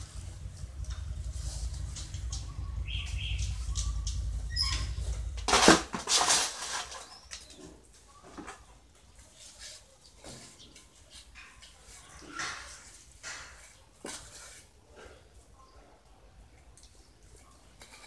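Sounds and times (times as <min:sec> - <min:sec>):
low rumble: 0:00.0 - 0:05.7.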